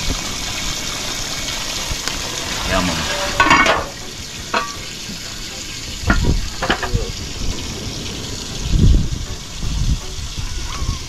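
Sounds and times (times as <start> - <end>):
pot simmering with sizzling hiss: 0.0 - 11.0
metal lid knocks: 6.1 - 7.0.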